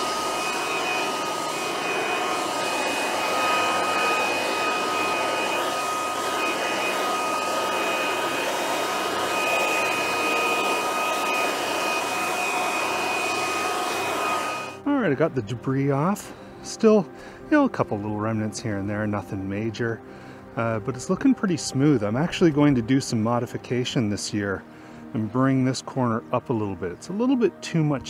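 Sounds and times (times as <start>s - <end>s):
electric leaf blower running: 0.0s - 14.9s.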